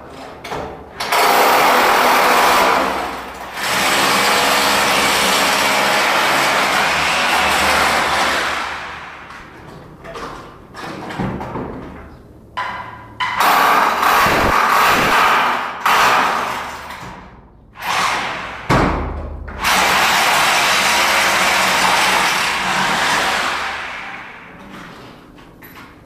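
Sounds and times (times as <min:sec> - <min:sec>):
power tool running: 0:19.6 - 0:24.5.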